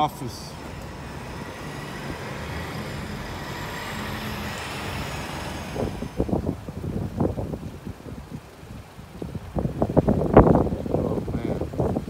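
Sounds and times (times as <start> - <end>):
faint engine hum: 0.0 - 6.9
road traffic rush: 0.0 - 12.0
wind buffeting microphone: 0.0 - 12.0.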